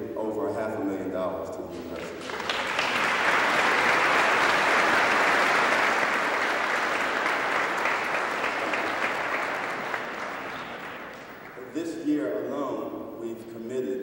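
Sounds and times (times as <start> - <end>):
audience applauding: 1.8 - 11.7.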